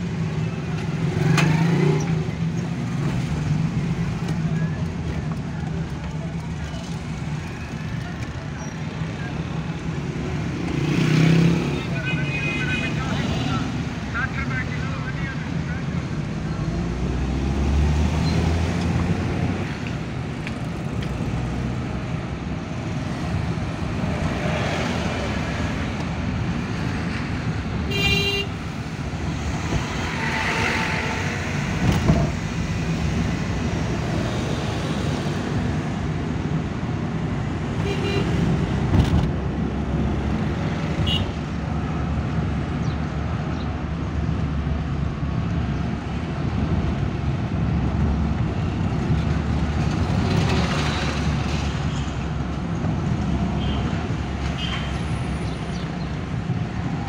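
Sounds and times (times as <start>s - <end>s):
car engine and road rumble: 0.0s - 57.0s
car horn honking: 27.9s - 28.6s, 41.0s - 41.4s.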